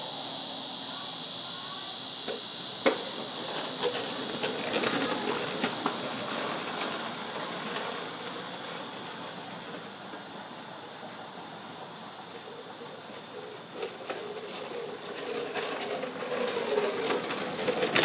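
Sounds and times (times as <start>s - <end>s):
kick scooter rattling clicks: 2.3s - 10.2s, 12.3s - 18.0s.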